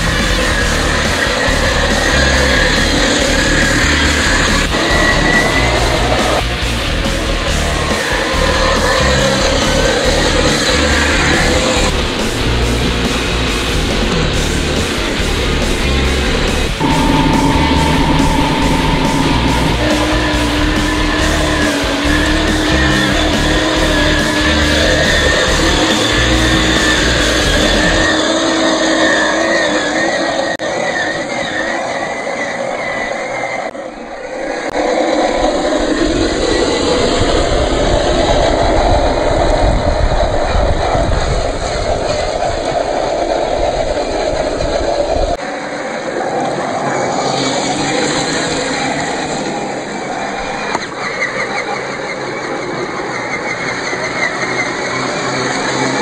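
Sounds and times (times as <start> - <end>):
steady rushing noise: 0.0 - 28.1
electric motor whining: 0.7 - 11.9, 16.5 - 28.6.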